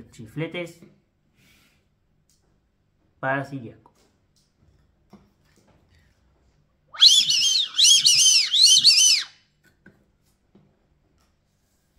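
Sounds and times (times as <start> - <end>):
shrill duck-call whistle: 6.9 - 9.4.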